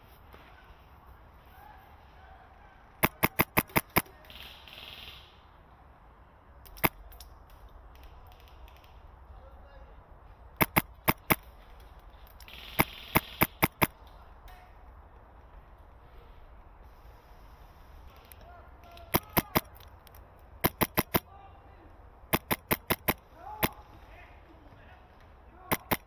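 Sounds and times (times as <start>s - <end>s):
airsoft rifle shots: 3.0s - 5.4s, 6.7s - 9.0s, 10.6s - 11.5s, 12.4s - 14.0s, 18.8s - 19.8s, 20.6s - 21.3s, 22.3s - 23.9s, 25.6s - 26.0s.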